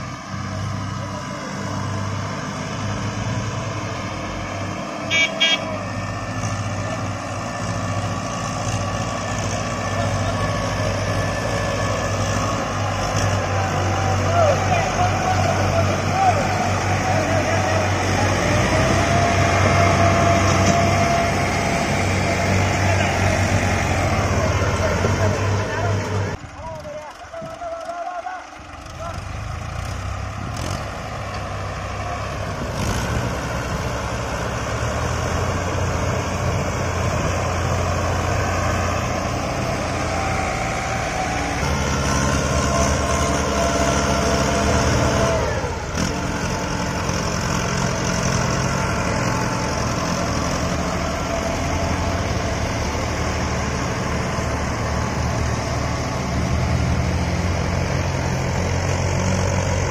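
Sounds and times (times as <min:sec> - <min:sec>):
tractor diesel engines running: 0:00.0 - 0:59.9.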